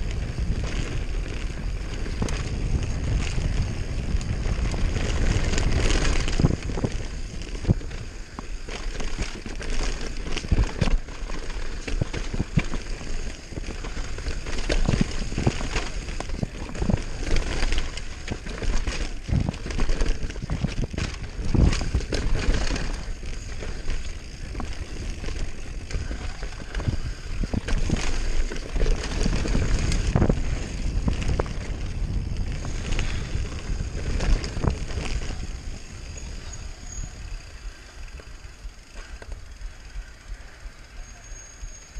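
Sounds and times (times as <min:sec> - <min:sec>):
wind buffeting microphone: 0:00.0 - 0:38.8
bike knocking and clattering: 0:00.0 - 0:40.4
rumble of knobby tyres: 0:00.0 - 0:41.9.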